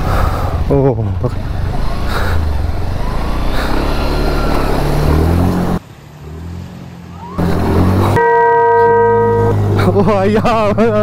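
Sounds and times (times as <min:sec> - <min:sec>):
motorcycle engine revving: 0:01.2 - 0:06.7.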